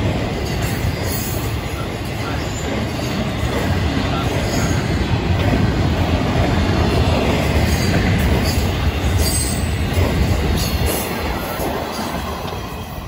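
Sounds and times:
freight train rumbling over rails: 0.0s - 13.0s
high wheel squeals: 10.6s - 13.0s.

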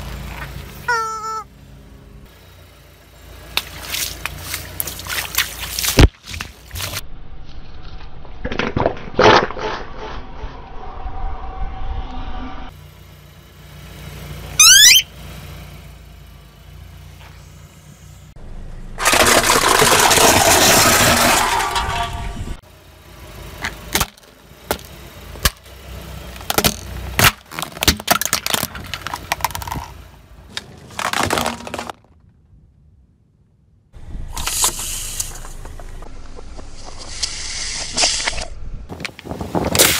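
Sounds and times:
short high squeal: 14.6s - 15.1s
tyre crushing plastic tubes: 19.0s - 22.2s, 26.4s - 32.3s.

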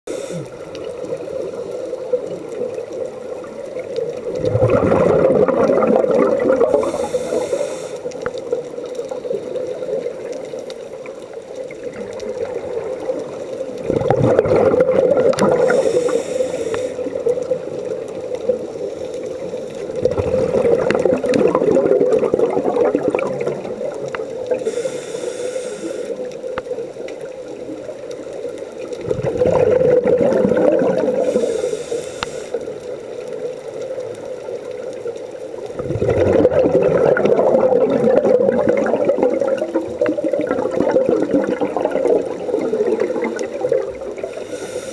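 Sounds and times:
regulator inhalation hiss: 0.1s - 0.9s, 6.7s - 8.2s, 15.6s - 17.2s, 24.5s - 26.5s, 31.2s - 32.8s, 44.2s - 44.9s
exhaled air bubbling underwater: 0.1s - 44.9s.

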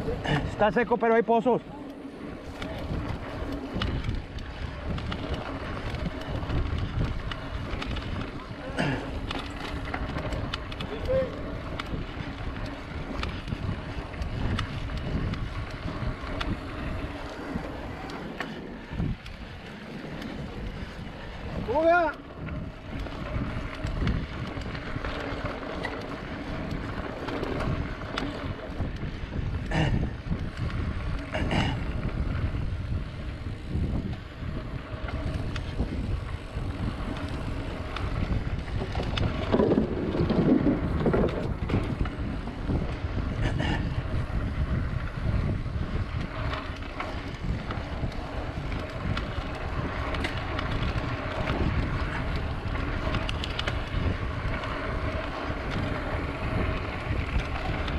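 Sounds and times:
wind on microphone: 0.0s - 0.7s, 1.6s - 57.9s
bike tyre and drivetrain noise: 0.0s - 57.9s
bike knocking over bumps: 35.0s - 44.3s.

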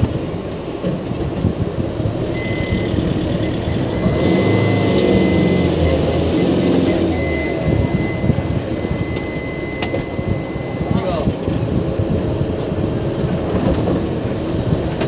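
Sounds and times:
vehicle engine running: 0.0s - 15.0s
steady high-pitched tone: 2.3s - 11.4s.

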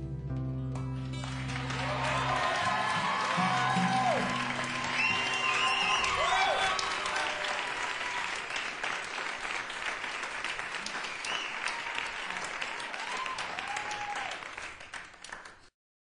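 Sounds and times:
audience clapping: 1.1s - 15.7s
audience whoops: 1.2s - 9.2s, 10.8s - 14.8s.

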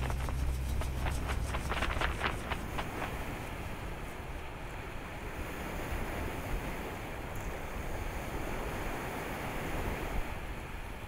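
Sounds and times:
steady rushing noise with rumble: 0.0s - 5.6s.

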